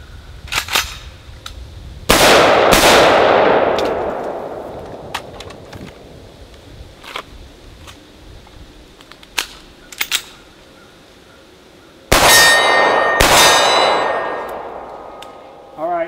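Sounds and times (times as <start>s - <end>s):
pistol shots: 2.1s - 5.1s, 12.1s - 15.2s
pistol loading clicks: 9.0s - 10.4s
bullet hitting steel target: 12.2s - 15.2s.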